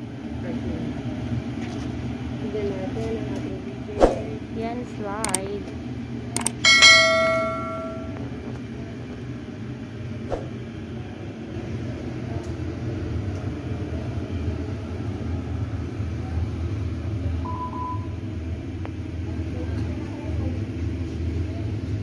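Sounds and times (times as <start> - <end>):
bell-like chime: 6.7 - 8.2.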